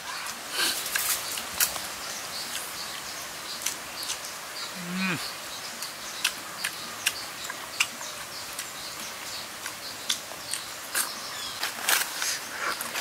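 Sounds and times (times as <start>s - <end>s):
leafy greens crackling: 0.0s - 13.0s.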